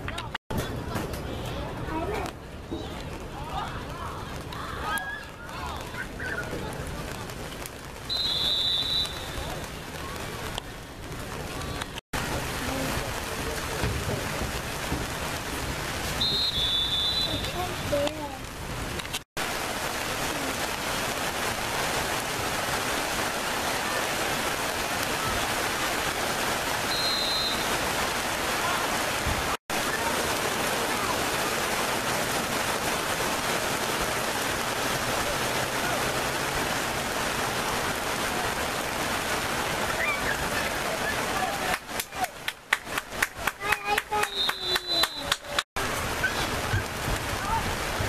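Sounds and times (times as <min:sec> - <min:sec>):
faint voices: 0:00.0 - 0:08.0, 0:33.4 - 0:42.5
rain hissing: 0:00.6 - 0:48.0.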